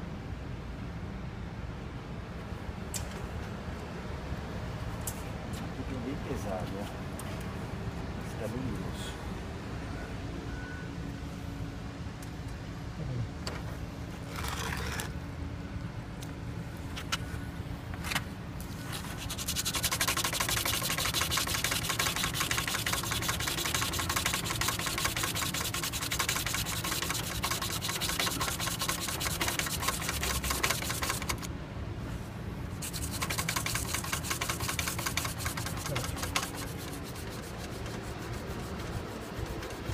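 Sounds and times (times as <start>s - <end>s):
scrubbing pad rasping on metal: 18.9s - 31.5s, 32.7s - 39.9s.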